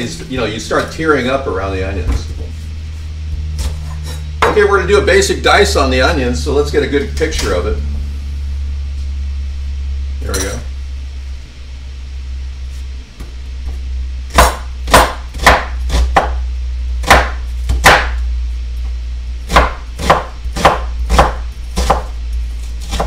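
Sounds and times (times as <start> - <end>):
knife chopping on wooden board: 14.3 - 16.4, 17.0 - 18.2, 19.5 - 22.2, 22.8 - 23.0.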